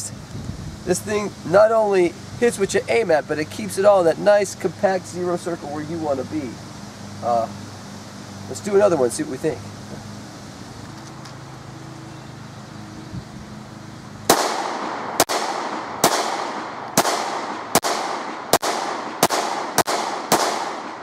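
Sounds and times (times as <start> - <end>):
pistol shots with echo: 14.3 - 21.0.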